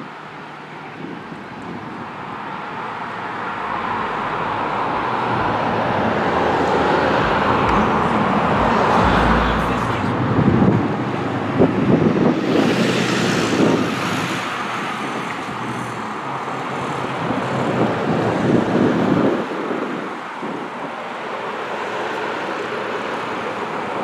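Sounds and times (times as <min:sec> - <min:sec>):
cars passing: 0:00.0 - 0:24.0
wind on microphone: 0:00.0 - 0:24.0.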